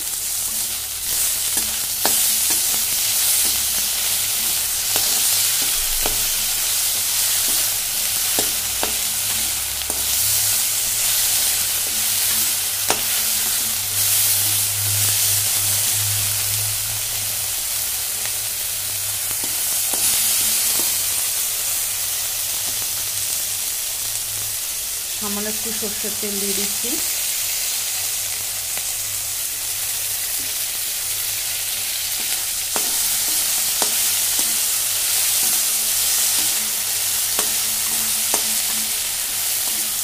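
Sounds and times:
metal spatula scraping wok: 0:00.0 - 0:16.7, 0:31.8 - 0:40.0
vegetables sizzling in oil: 0:00.0 - 0:40.0.

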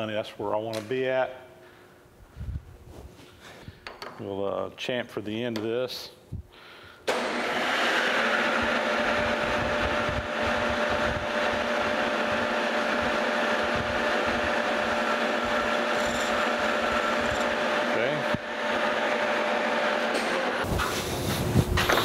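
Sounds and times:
metal lathe running: 0:07.2 - 0:20.6.

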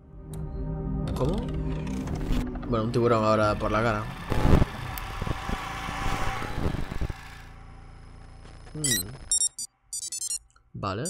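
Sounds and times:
electronic beeps and glitchy blips: 0:08.6 - 0:10.4.

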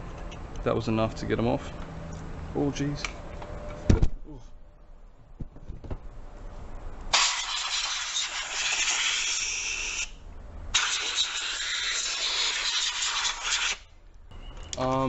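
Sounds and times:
compressed air hissing: 0:07.1 - 0:13.9.

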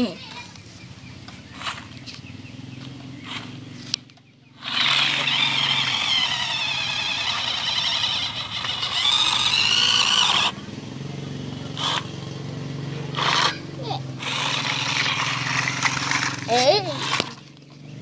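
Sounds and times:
toy car electric motor whining: 0:01.5 - 0:02.1, 0:03.2 - 0:03.5, 0:04.5 - 0:10.6, 0:11.8 - 0:12.1, 0:13.1 - 0:17.6
car driving over gravel: 0:14.3 - 0:17.6.

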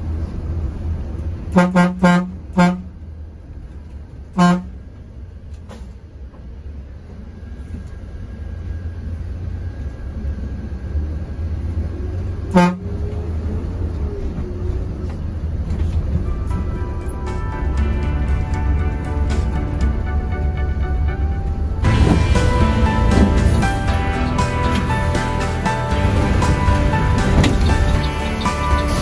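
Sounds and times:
low engine rumble: 0:00.0 - 0:29.0
vehicle horn toots: 0:01.5 - 0:03.0, 0:04.3 - 0:04.8, 0:12.5 - 0:13.0.

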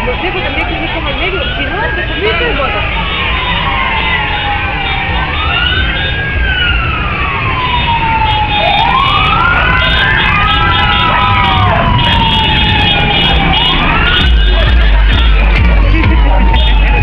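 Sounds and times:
vehicle sirens wailing: 0:00.0 - 0:17.0.

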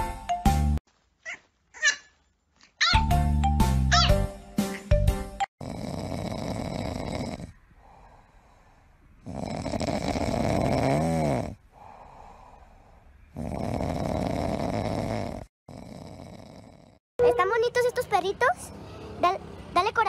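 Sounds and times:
puppy snoring: 0:05.6 - 0:07.6, 0:09.2 - 0:11.6, 0:13.3 - 0:17.0.

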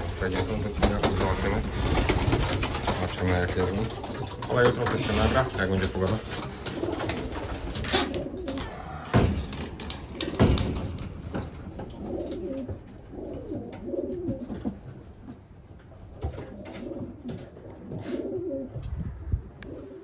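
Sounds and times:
pigeons cooing: 0:00.0 - 0:20.0
sharp knocks: 0:08.6 - 0:12.8.

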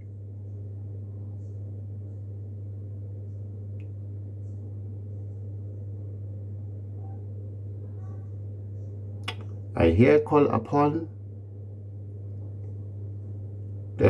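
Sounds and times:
steady low hum: 0:00.0 - 0:14.0
faint click: 0:03.8 - 0:04.0.

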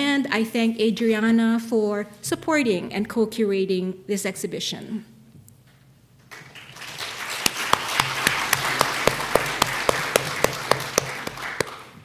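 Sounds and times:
audience applauding: 0:06.3 - 0:12.0
close hand claps: 0:06.3 - 0:12.0.

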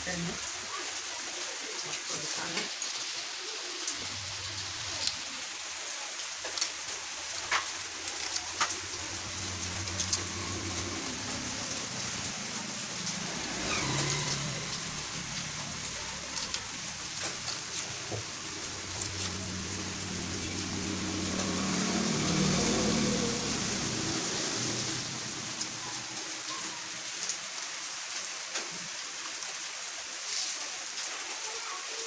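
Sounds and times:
steady hiss: 0:01.4 - 0:31.6
low hum: 0:07.7 - 0:26.2.

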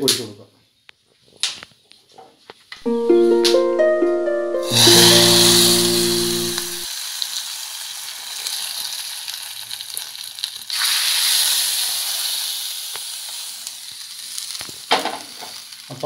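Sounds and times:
background music: 0:02.8 - 0:06.9
hot oil sizzling: 0:04.7 - 0:16.0.

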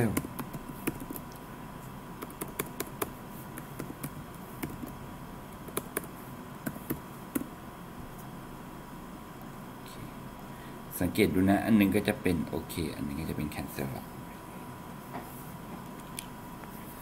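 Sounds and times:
computer keyboard typing: 0:00.0 - 0:01.4, 0:02.2 - 0:05.0, 0:05.6 - 0:07.5.

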